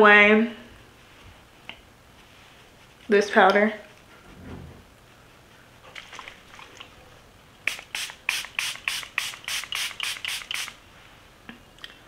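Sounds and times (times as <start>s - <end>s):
spray bottle hissing pumps: 7.7s - 10.8s.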